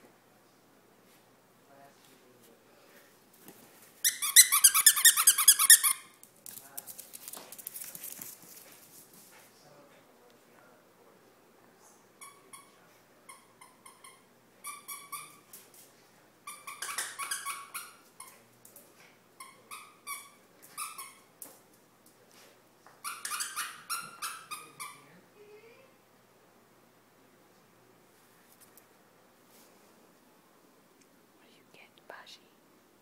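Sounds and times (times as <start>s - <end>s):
squeaky dog toy squeaking: 4.0s - 6.2s, 12.2s - 15.5s, 16.5s - 18.1s, 19.4s - 21.3s, 23.0s - 25.1s.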